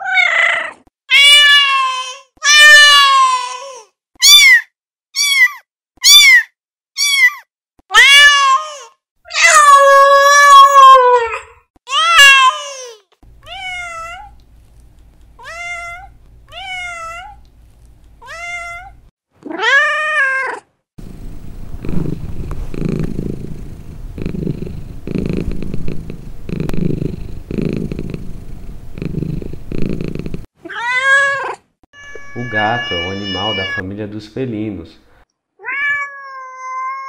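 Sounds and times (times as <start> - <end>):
cats meowing: 0.0 - 4.6, 5.2 - 14.4, 15.3 - 17.5, 18.2 - 21.1, 30.6 - 33.8, 35.6 - 37.0
cat purring: 21.0 - 30.5.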